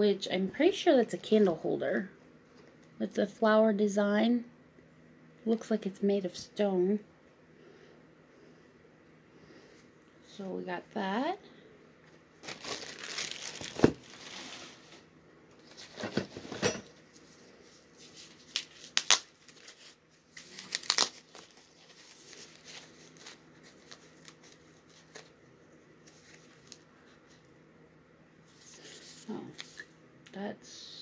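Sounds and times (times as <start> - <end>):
paper wrapping crinkling: 12.4 - 16.2, 17.1 - 25.4, 26.0 - 27.4.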